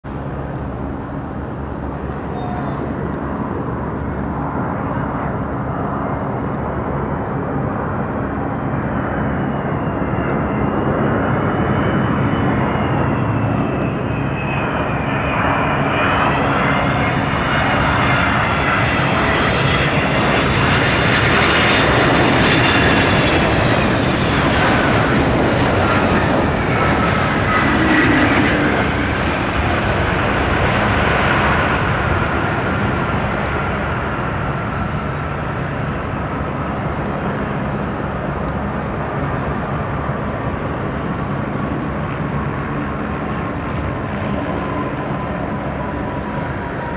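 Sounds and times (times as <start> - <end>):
jet airliner landing: 0.1 - 46.9.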